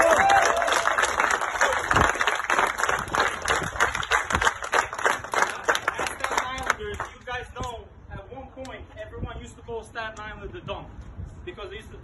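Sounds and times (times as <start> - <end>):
crowd clapping: 0.0 - 7.2.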